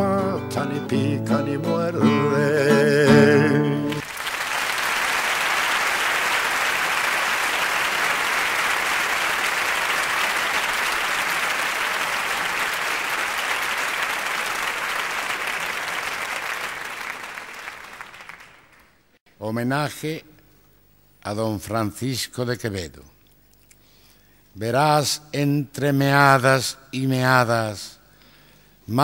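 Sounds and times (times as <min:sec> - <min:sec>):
audience applauding: 0:03.8 - 0:19.0.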